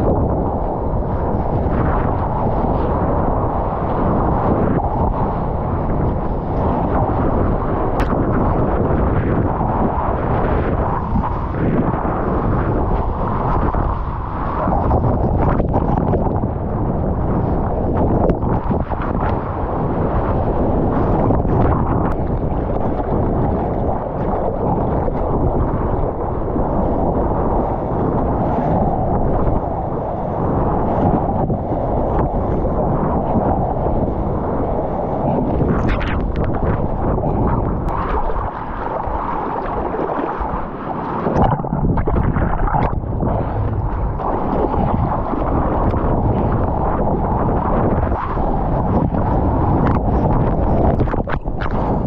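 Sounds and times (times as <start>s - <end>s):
wind and water rushing on microphone: 0.0s - 52.0s.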